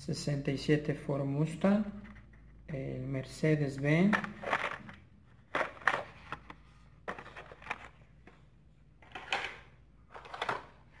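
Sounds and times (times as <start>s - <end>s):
plastic and card crinkling and clacking: 3.8s - 11.0s.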